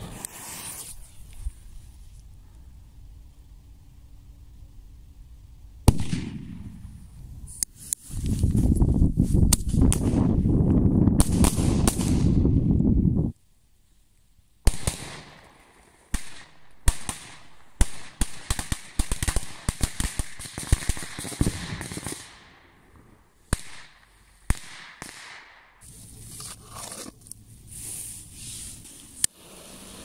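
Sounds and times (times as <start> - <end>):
rustling and handling noise: 25.8 - 29.2.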